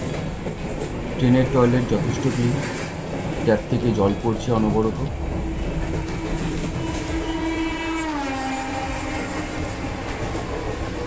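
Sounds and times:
train coach rumble: 0.0 - 11.0
train horn: 5.5 - 11.0.

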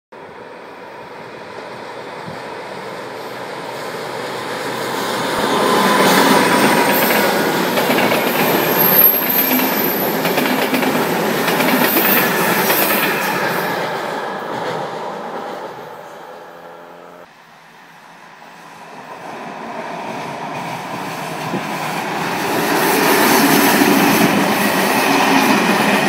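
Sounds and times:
wheels squealing: 5.0 - 10.4
train wheels clattering: 5.8 - 13.8.

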